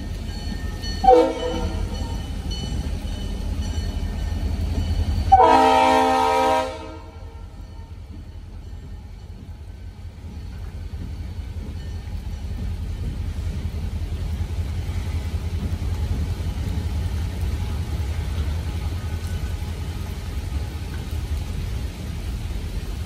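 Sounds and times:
freight train rumbling past: 0:00.0 - 0:23.0.

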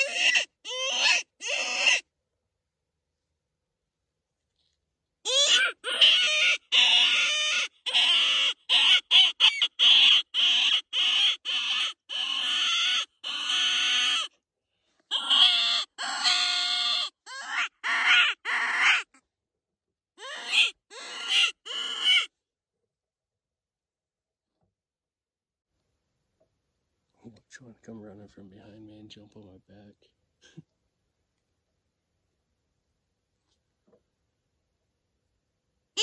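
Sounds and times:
predator call raspy cries: 0:00.0 - 0:02.1, 0:05.3 - 0:14.4, 0:15.1 - 0:19.2, 0:20.2 - 0:22.3.

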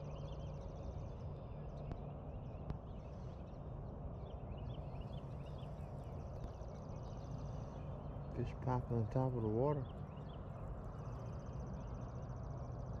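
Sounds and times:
small birds chirping: 0:00.2 - 0:13.0.

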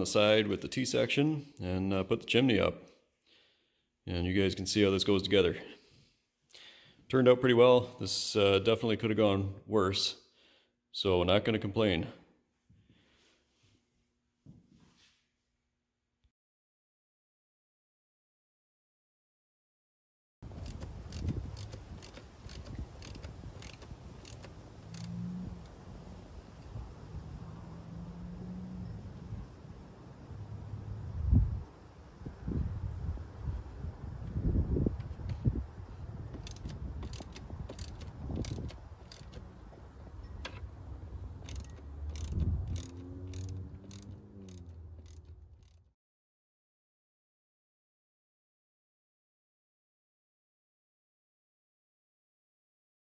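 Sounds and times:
hand tools clicking on metal: 0:20.5 - 0:25.7, 0:36.4 - 0:40.7, 0:41.4 - 0:45.8.

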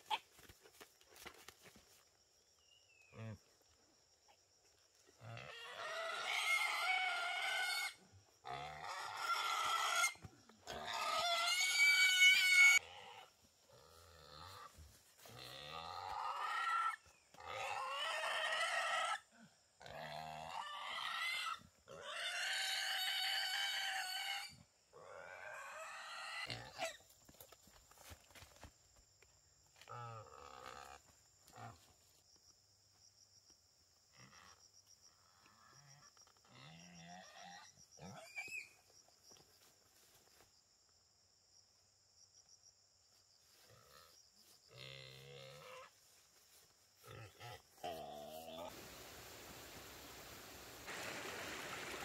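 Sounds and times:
wild boar squealing: 0:05.4 - 0:13.3, 0:15.5 - 0:19.3, 0:20.0 - 0:27.0, 0:37.2 - 0:38.8.

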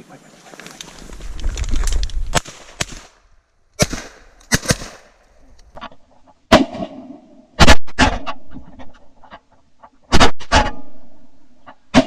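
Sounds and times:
shotgun shots: 0:02.3 - 0:03.2, 0:03.8 - 0:05.2, 0:06.5 - 0:08.3.

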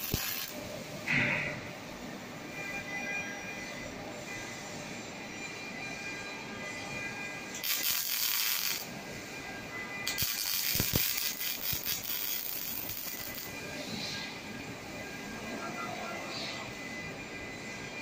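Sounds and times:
welding arc crackling and hissing: 0:00.0 - 0:00.6, 0:07.5 - 0:09.4, 0:10.0 - 0:13.6.

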